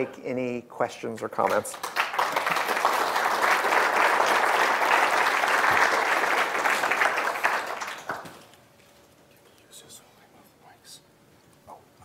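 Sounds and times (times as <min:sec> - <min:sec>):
audience applauding: 0:01.5 - 0:08.6.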